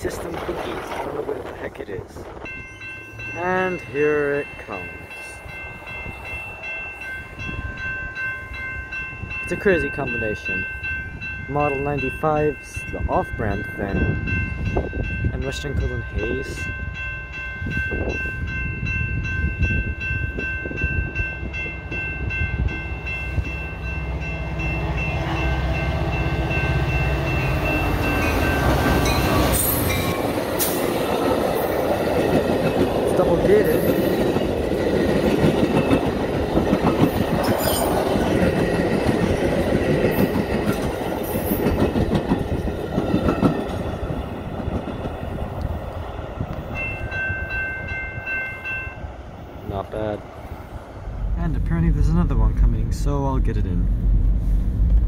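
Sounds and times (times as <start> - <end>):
crossing bell ringing: 0.0 - 50.6
train rumble and engine drone: 0.0 - 55.0.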